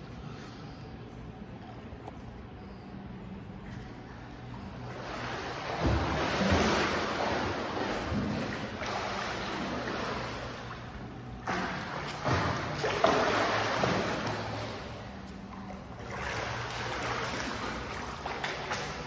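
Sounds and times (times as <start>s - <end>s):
swimmer splashing water: 4.3s - 19.0s.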